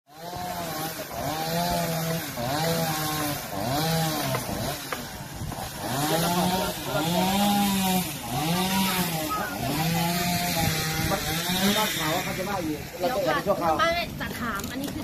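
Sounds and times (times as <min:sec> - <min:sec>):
power tool engine revving: 0:00.1 - 0:13.8.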